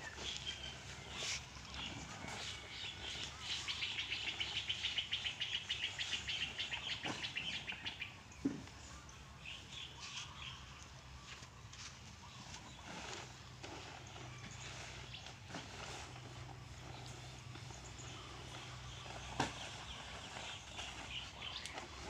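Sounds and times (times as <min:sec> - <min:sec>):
bird chirps: 0:00.0 - 0:10.9.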